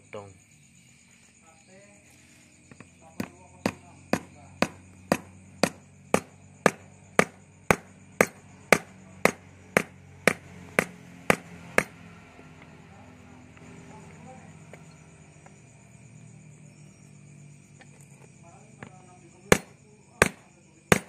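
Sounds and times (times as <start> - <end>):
hammer tapping metal: 2.8 - 12.0.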